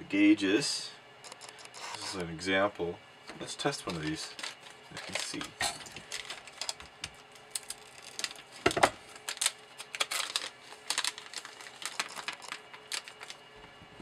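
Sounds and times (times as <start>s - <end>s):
plastic parts clicking and rustling: 3.8s - 6.8s, 7.5s - 13.4s.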